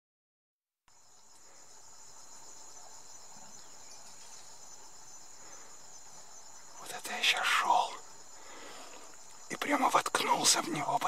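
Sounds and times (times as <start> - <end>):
insects trilling: 0.9 - 11.0.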